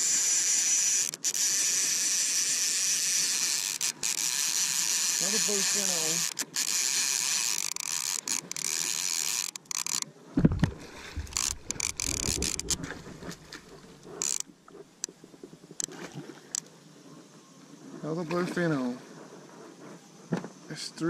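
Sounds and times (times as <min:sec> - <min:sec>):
fishing reel drag buzzing: 0:00.0 - 0:10.1, 0:11.2 - 0:13.5, 0:14.1 - 0:14.5
fish thrashing and splashing: 0:03.4 - 0:14.4
sharp clicks: 0:07.4 - 0:12.9, 0:14.2 - 0:14.4
heavy low thump: 0:10.4 - 0:11.3.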